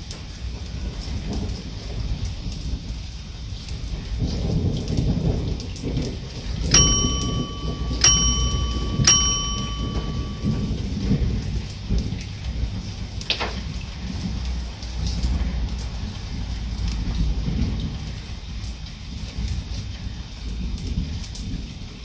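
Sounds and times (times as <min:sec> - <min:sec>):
steady rain: 0:00.0 - 0:09.0, 0:09.7 - 0:22.0
low rumbling thunder: 0:00.6 - 0:06.7
bell-like notification dings: 0:06.8 - 0:10.8.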